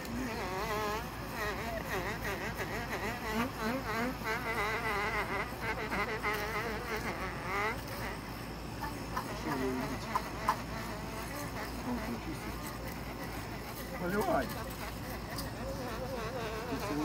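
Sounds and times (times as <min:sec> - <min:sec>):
electric fish scaler buzzing: 0:00.0 - 0:17.0.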